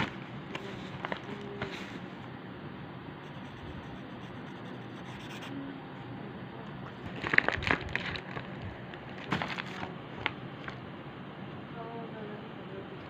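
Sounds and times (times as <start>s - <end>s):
plastic pouch crinkling: 7.0s - 10.8s.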